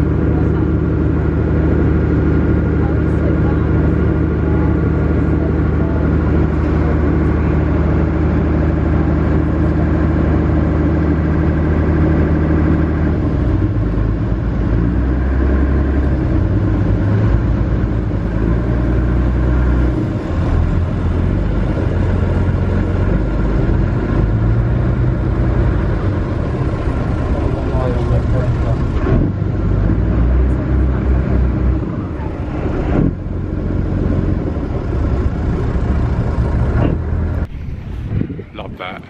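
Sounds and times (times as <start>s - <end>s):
ferry engine running: 0.0s - 39.0s.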